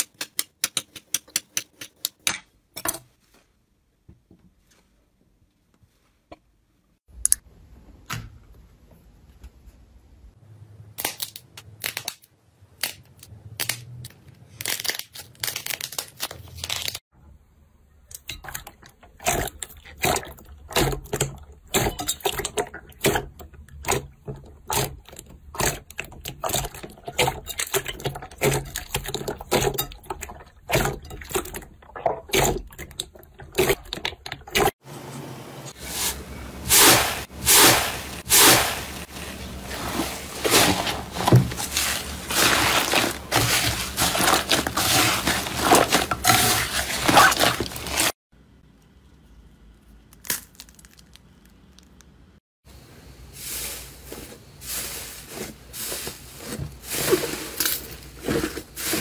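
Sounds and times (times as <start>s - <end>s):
slime squelches: 36.0s - 48.2s.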